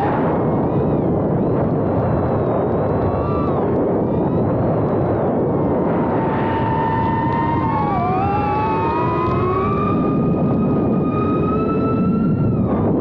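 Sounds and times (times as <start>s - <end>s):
quadcopter motors whining: 0.0s - 13.0s.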